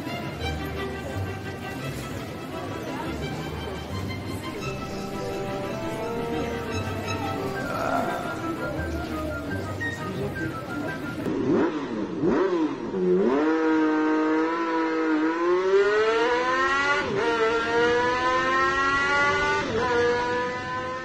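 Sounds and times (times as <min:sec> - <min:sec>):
car engine accelerating: 0:04.7 - 0:21.0.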